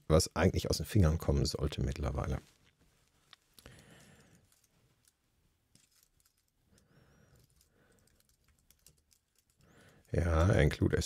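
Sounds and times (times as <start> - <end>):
typing on computer keyboard: 7.3 - 10.1.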